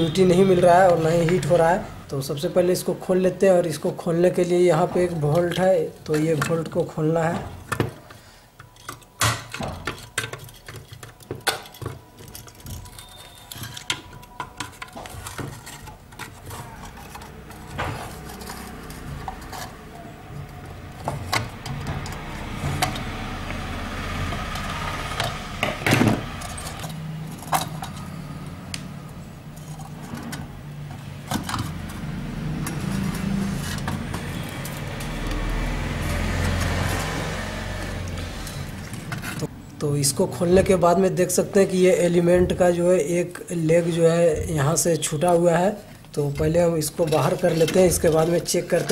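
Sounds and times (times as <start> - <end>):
metal parts clicking and scraping: 7.6 - 23.1, 24.5 - 35.4, 38.0 - 39.5, 45.0 - 48.9.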